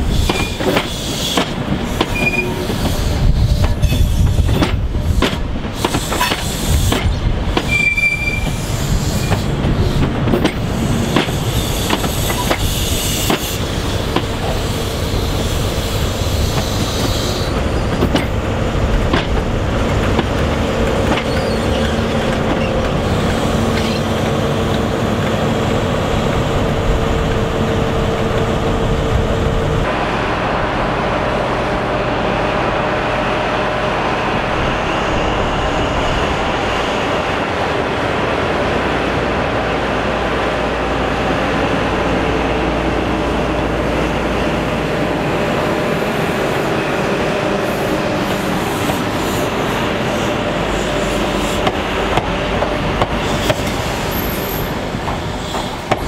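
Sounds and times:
train rolling over rails: 0.0s - 56.0s.

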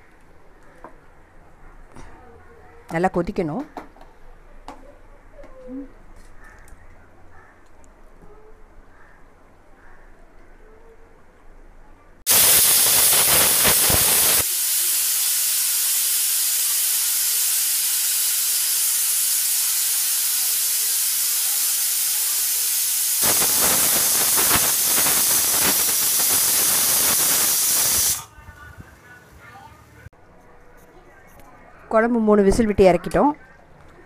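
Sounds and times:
pressure cooker whistling: 12.3s - 28.3s
steam hissing from valve: 12.3s - 28.3s.

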